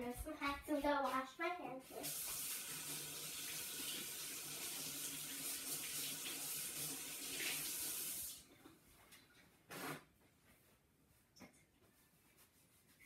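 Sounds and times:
tap water running into sink: 2.0 - 8.4.

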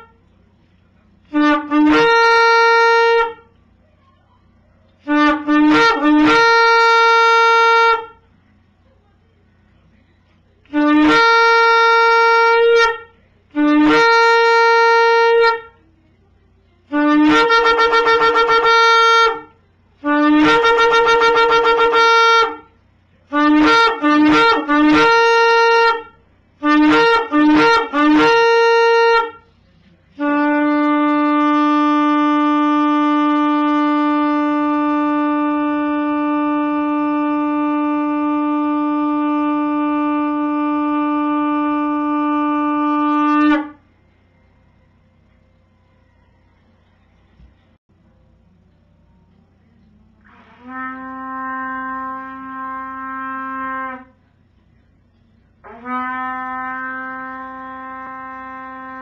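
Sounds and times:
shofar blasts: 1.2 - 3.5, 5.0 - 8.2, 10.7 - 15.8, 16.9 - 29.5, 30.1 - 43.9, 50.2 - 54.3, 55.6 - 59.0.

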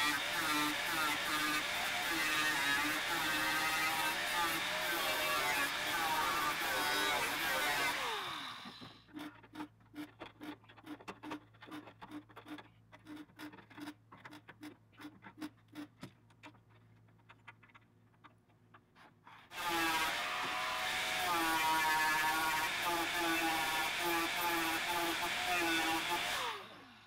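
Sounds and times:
welder crackling tack welds: 0.0 - 8.8
angle grinder whine: 0.0 - 8.9, 19.5 - 27.0.

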